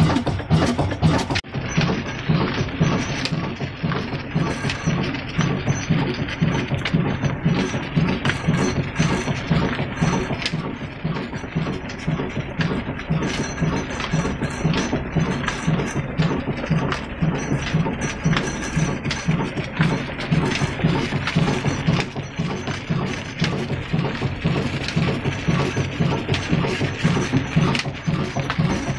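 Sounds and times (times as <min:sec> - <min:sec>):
line shaft and pulleys clattering: 0:00.0 - 0:28.9
stationary diesel engine running: 0:00.0 - 0:28.9.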